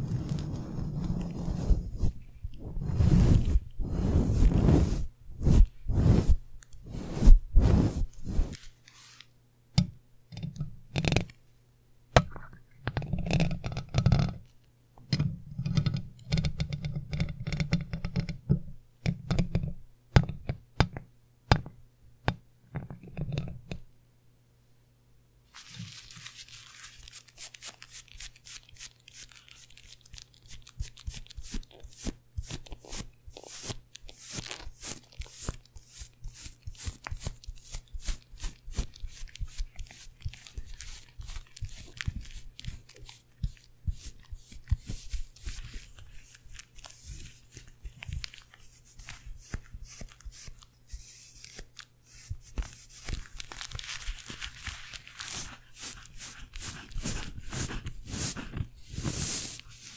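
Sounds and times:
brushes rubbing microphone grille: 0.0 - 9.2, 25.5 - 59.9.

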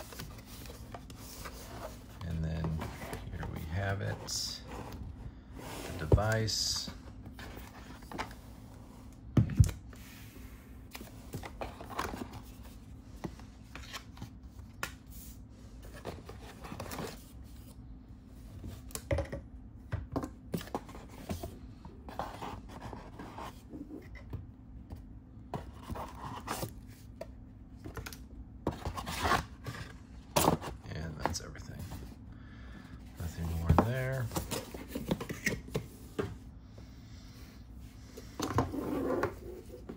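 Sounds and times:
hands handling cardboard box: 5.9 - 8.4, 33.2 - 36.4.

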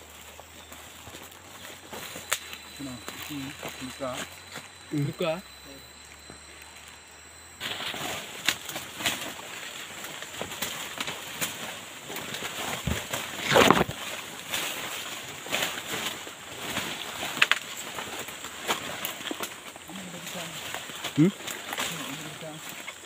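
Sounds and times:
footsteps: 0.0 - 5.2
leaves and branches rustling: 0.0 - 23.0.

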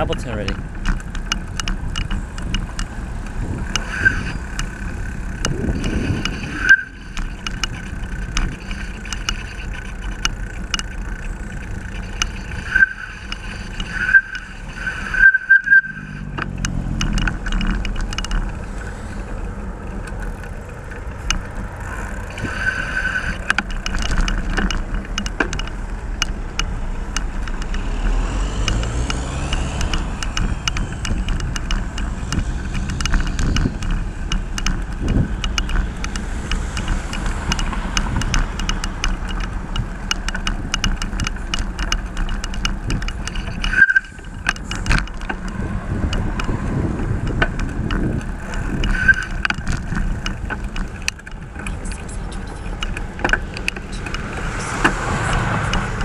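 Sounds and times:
road traffic rumble: 0.0 - 56.0
sharp clicks: 0.0 - 56.0
wind and tyre noise: 0.0 - 56.0
short high squeaks: 3.7 - 16.6, 21.7 - 24.8, 43.1 - 45.7, 48.0 - 50.0.

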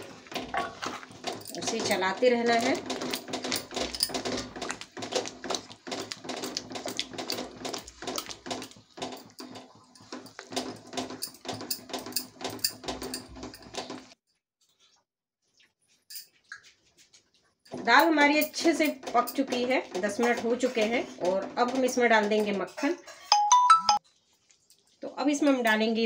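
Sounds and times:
thick dal squelching: 0.0 - 10.8
wooden spoon scraping a pan: 17.9 - 23.3.

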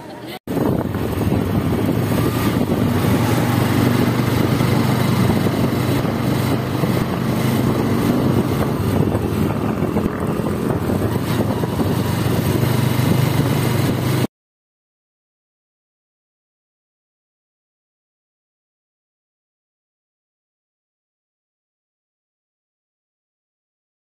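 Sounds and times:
road and wind noise: 0.0 - 14.3
small vehicle engine running: 0.5 - 14.3.

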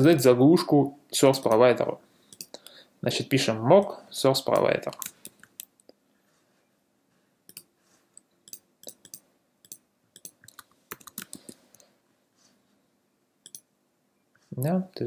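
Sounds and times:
keyboard typing: 2.3 - 2.6, 4.5 - 5.7, 7.5 - 11.8, 13.4 - 13.7.

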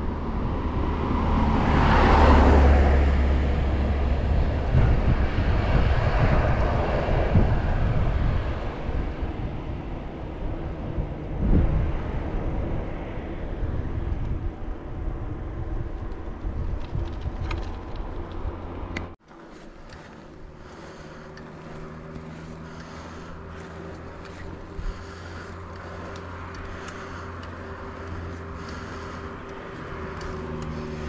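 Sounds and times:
wind and road noise rushing: 0.0 - 31.0.

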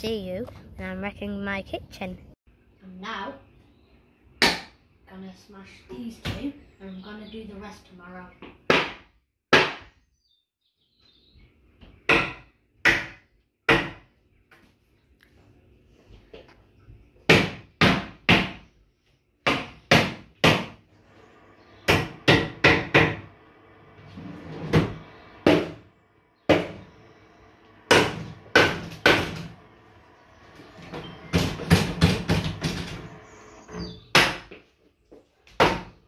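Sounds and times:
cupboards being smashed: 27.9 - 29.6, 31.0 - 33.1.

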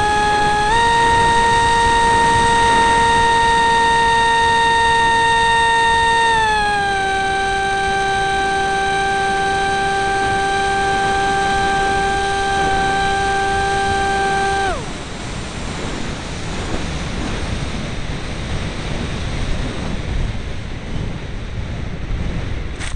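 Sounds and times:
electric motor high whine: 0.0 - 16.0.

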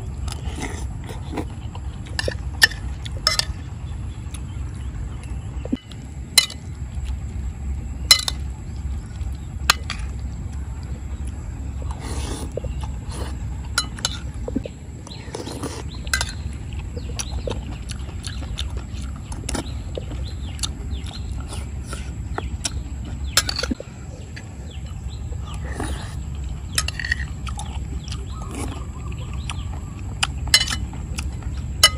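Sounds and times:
mouth noises of eating: 0.0 - 3.2, 10.5 - 31.8
steady low rumble: 0.0 - 31.9.

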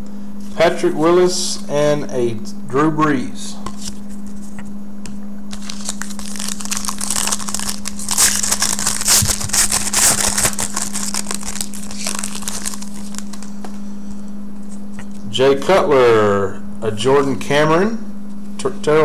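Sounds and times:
foil wrapper crinkling: 5.5 - 13.6.

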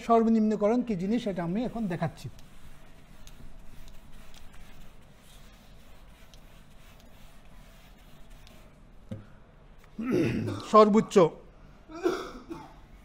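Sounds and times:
whiteboard eraser rubbing: 1.2 - 8.8.

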